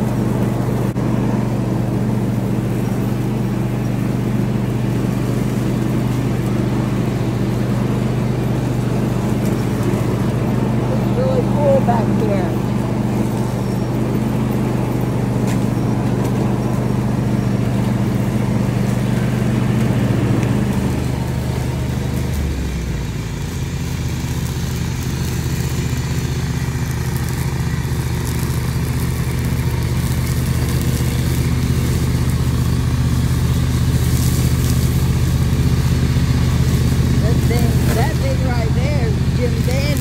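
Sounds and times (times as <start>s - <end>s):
mower engine running: 0.0s - 40.0s.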